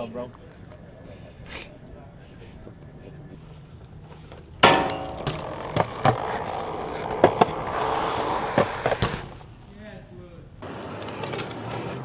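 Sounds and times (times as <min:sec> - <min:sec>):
wheels rolling on pavement: 0:02.1 - 0:09.8, 0:10.6 - 0:12.0
bike hard hit ringing: 0:04.6 - 0:06.0.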